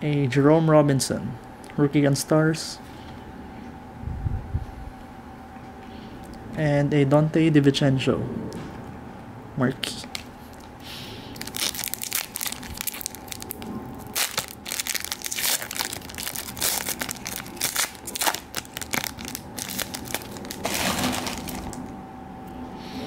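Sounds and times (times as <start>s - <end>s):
foil wrapper crinkling and tearing: 11.3s - 21.9s.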